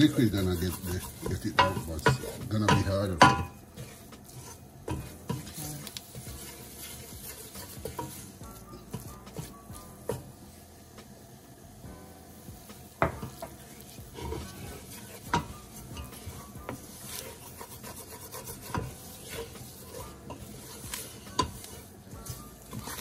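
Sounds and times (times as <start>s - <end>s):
wooden spoon scraping a steel pot: 0.0s - 10.3s, 13.0s - 23.0s
spoon knocking against pot: 1.3s - 3.6s, 13.0s - 13.6s.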